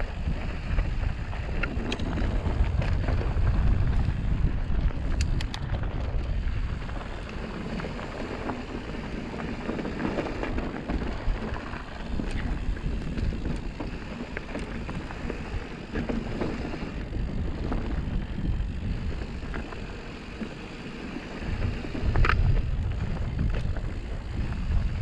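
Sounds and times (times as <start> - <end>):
bike tyres on dirt trail: 0.0 - 25.0
wind buffeting microphone: 0.0 - 25.0
sharp clicks and rattles: 1.5 - 8.6.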